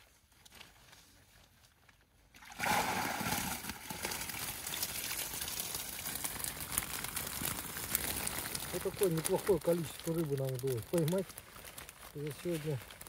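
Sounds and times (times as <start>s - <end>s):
water splashing and streaming: 2.4s - 8.6s.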